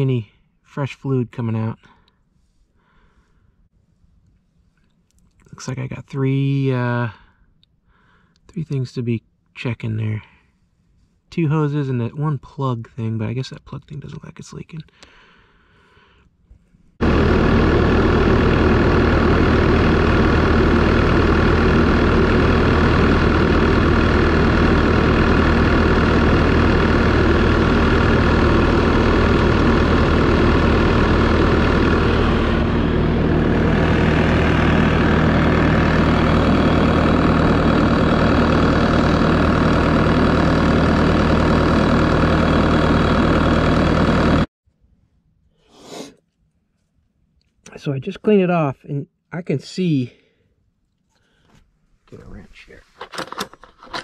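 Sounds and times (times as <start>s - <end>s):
diesel engine running: 17.0s - 44.5s.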